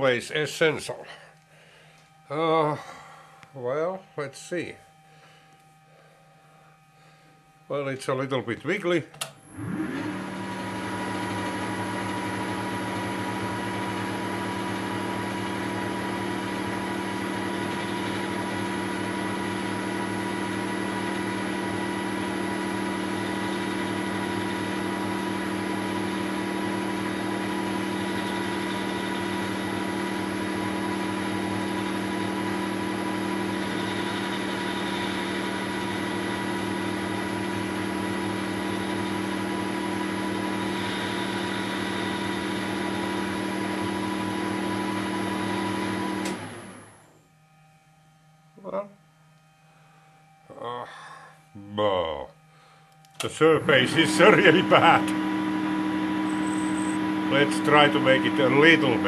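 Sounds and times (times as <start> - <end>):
lathe motor humming: 9.2 - 47.1, 52.6 - 59.0.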